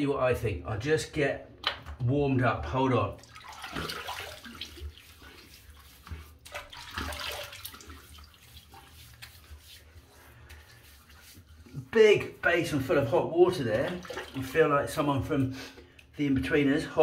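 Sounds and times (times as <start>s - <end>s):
water splashing in a basin: 3.1s - 9.8s, 13.6s - 15.1s.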